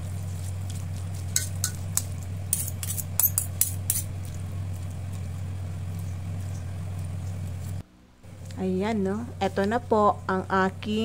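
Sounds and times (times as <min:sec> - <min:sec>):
steady low hum: 0:00.0 - 0:11.0
metal utensils clinking in steel bowl: 0:01.4 - 0:04.0.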